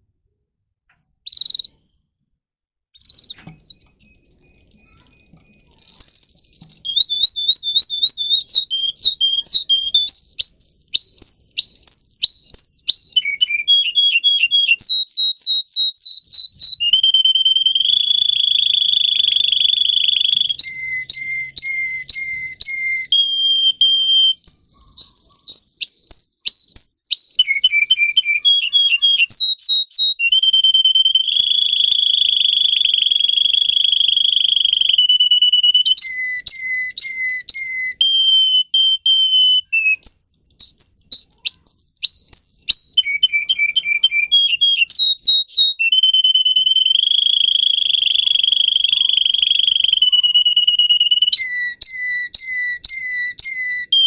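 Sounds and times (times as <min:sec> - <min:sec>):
canary singing trills: 0:01.2 - 0:02.0, 0:03.0 - 0:54.0.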